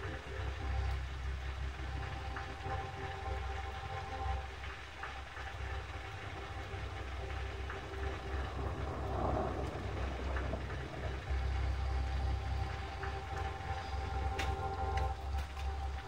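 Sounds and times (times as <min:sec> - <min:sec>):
low droning music: 0:00.0 - 0:16.0
steady rain falling: 0:00.0 - 0:16.0.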